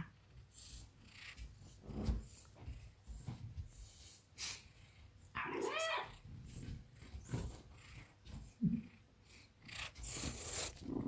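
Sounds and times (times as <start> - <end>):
cat sniffing and snuffling: 0.2 - 5.3, 6.2 - 11.0
cat meowing: 5.4 - 6.2.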